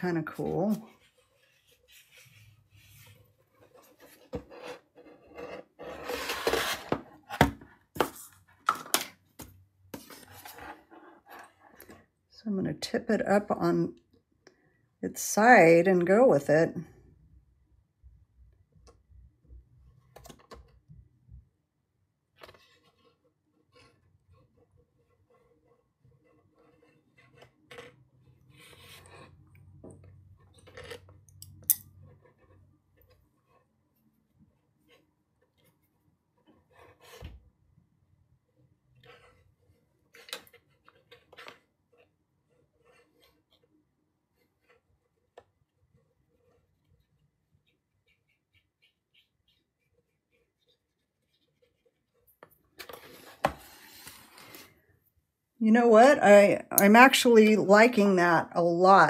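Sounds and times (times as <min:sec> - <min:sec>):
paper rustling and scraping: 0:00.3 - 0:08.5, 0:48.0 - 0:54.8.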